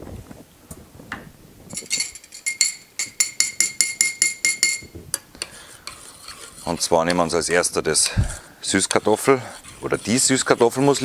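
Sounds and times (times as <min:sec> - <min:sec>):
utensil clinking against saucepan: 0:01.8 - 0:07.2.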